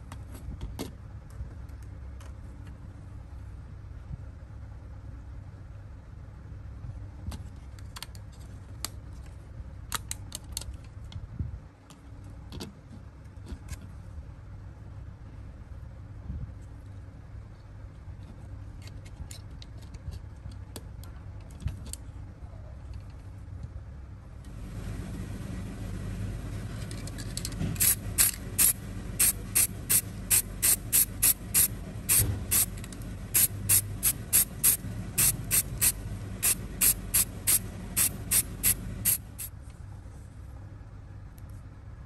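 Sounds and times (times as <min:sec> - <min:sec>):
steady low hum: 0:00.0 - 0:42.0
short hissing spray bursts: 0:27.8 - 0:39.5.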